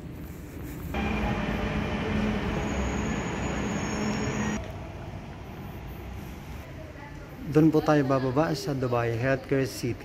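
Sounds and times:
train rumbling at platform: 0:00.0 - 0:07.5
thin high whine: 0:01.0 - 0:04.6.

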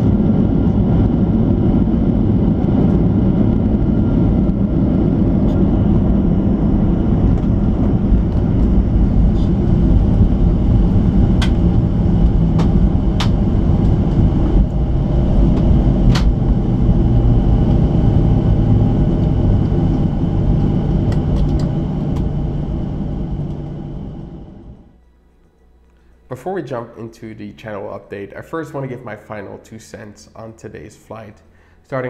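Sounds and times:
rumble of engines and wheels: 0:00.0 - 0:25.0
clicks and rattles in cabin: 0:15.6 - 0:16.4.

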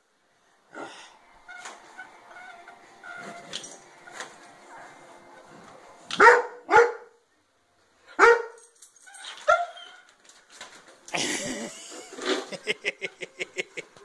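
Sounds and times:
dog barking: 0:06.1 - 0:07.2, 0:08.2 - 0:08.6.

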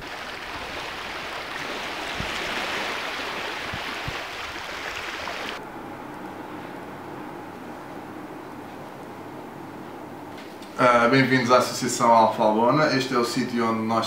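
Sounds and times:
wind and water at shore: 0:00.0 - 0:05.6
faint steady hum: 0:00.0 - 0:14.0.

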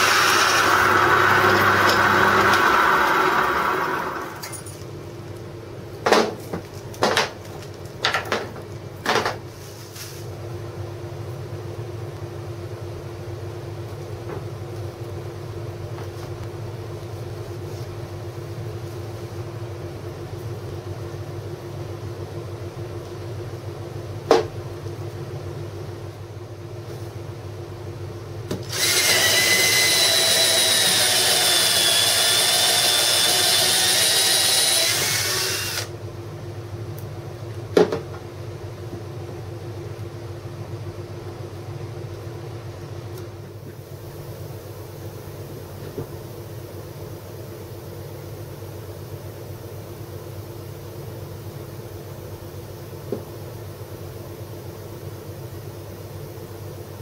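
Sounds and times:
cordless drill boring through wood: 0:00.0 - 0:04.4, 0:28.7 - 0:35.9
low background hum: 0:00.0 - 0:57.0.

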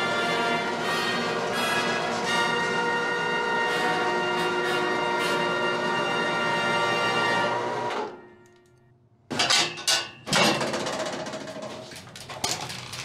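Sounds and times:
music: 0:00.0 - 0:08.8
metal door banging open: 0:09.3 - 0:13.0.

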